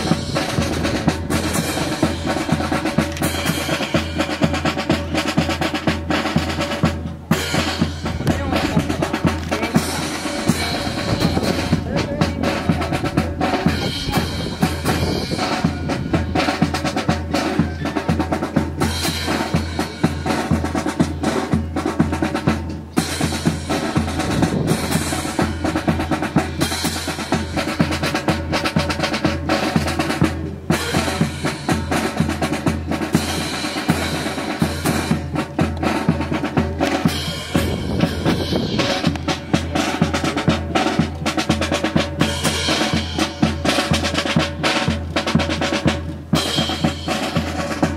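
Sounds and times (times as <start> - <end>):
drum-heavy music: 0.0 - 47.9.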